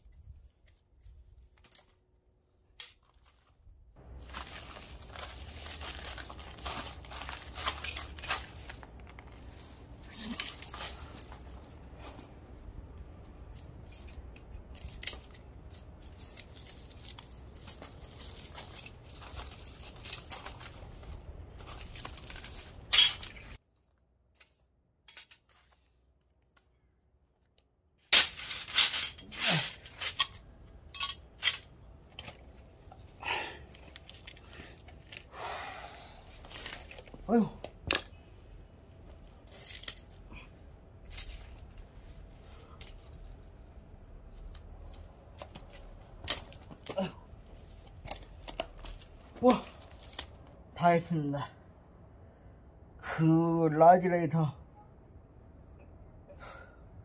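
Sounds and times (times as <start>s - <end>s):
metal fins crinkling and tearing: 4.2s - 12.3s, 13.0s - 23.6s, 28.1s - 35.3s, 36.4s - 38.0s, 44.3s - 50.6s.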